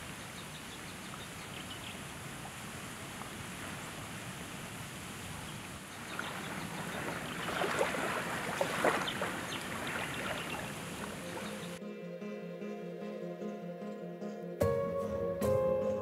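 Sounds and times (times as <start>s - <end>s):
small waves lapping on sand: 0.0s - 11.8s
water crackling over sand: 0.0s - 11.8s.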